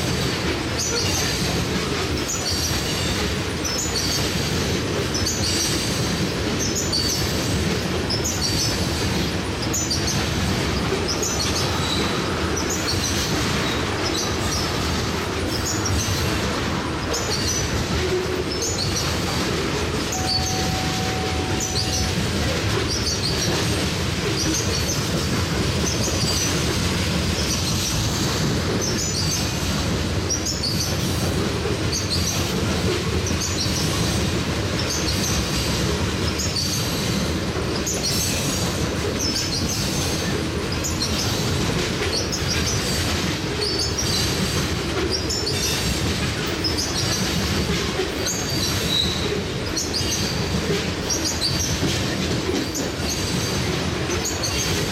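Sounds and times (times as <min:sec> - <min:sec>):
steel wheels rumbling on rails: 0:00.0 - 0:54.9
high-pitched wheel noise: 0:20.1 - 0:23.6.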